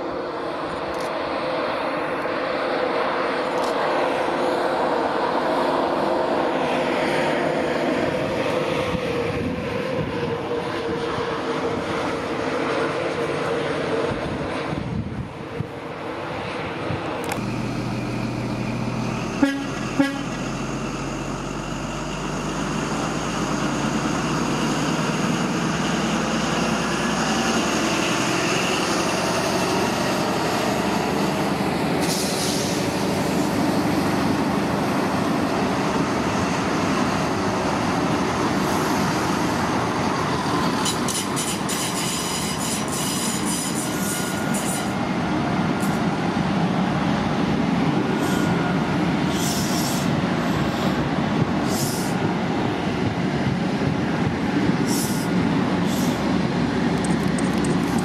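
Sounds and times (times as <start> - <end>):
diesel engine hum: 0.0 - 41.1
train coaches rumbling: 0.0 - 58.0.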